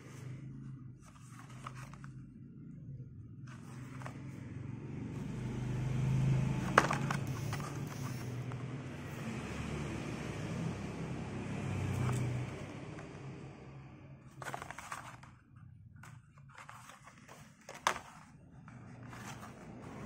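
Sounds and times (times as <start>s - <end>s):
vehicles passing: 3.2s - 16.2s, 18.5s - 20.0s.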